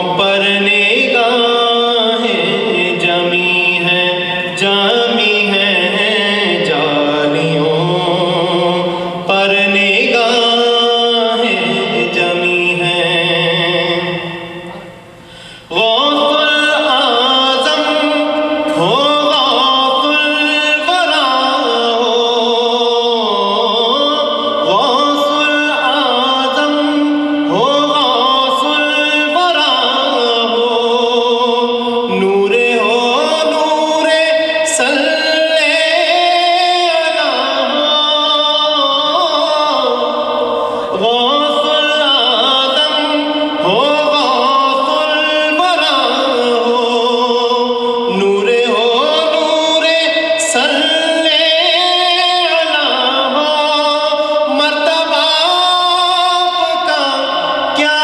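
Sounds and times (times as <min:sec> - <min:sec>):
man singing devotional chant: 0:00.0 - 0:15.0, 0:15.6 - 0:58.0.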